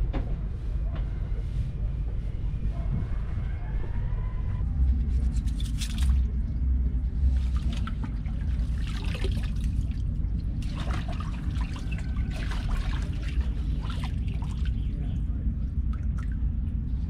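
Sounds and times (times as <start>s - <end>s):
steady low rumble: 0.0s - 17.0s
water splashing and dripping: 7.4s - 15.1s.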